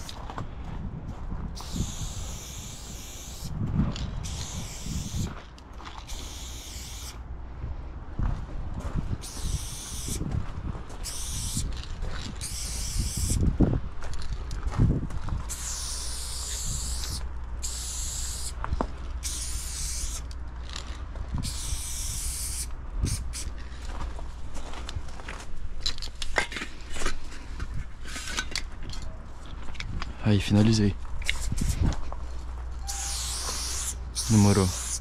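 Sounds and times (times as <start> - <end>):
steady low rumble: 0.0 - 35.0
spray paint can hissing: 1.6 - 3.6, 4.2 - 5.4, 6.0 - 7.2, 9.2 - 10.2, 11.0 - 13.4, 15.5 - 18.6, 19.2 - 20.3, 21.4 - 23.5, 31.2 - 31.8, 32.8 - 35.0.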